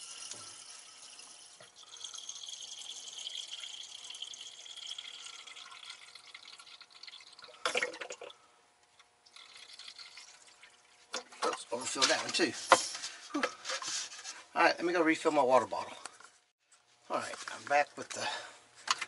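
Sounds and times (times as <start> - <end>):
water trickling from squeeze bottle: 0.0 - 8.4, 9.2 - 11.2.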